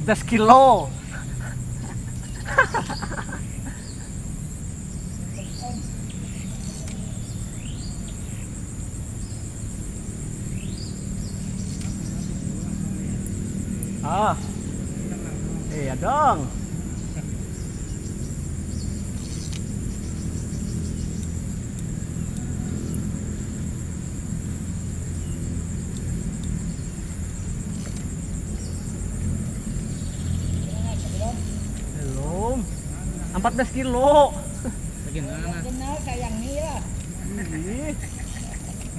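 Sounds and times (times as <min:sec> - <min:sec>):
insect drone: 0:00.0 - 0:38.9
faint clicks: 0:11.6 - 0:12.1, 0:19.2 - 0:20.0, 0:27.7 - 0:28.7.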